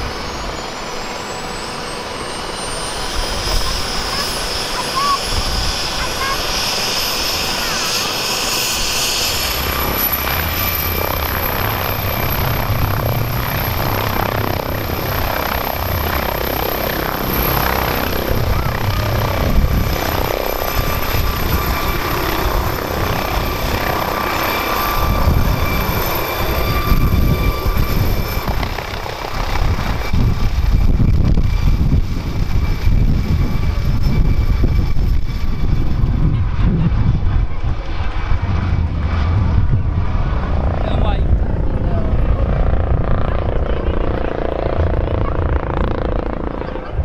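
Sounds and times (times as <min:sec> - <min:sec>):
helicopter rotor beating: 0:00.0 - 0:47.0
helicopter turbine whine: 0:00.0 - 0:47.0.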